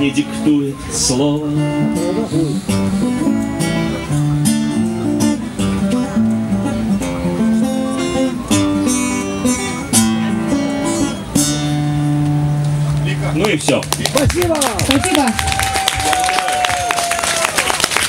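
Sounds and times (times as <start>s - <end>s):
classical acoustic guitar: 0.0s - 13.2s.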